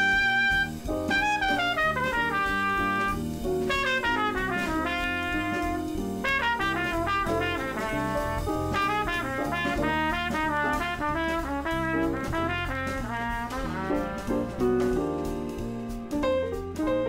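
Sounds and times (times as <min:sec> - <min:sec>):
jazzy brass melody: 0:00.0 - 0:17.0
steady bass: 0:00.0 - 0:17.0.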